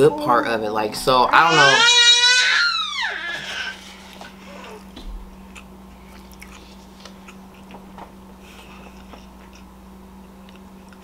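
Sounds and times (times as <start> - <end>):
steady low hum: 0.0 - 11.0
person chewing food: 3.8 - 11.0.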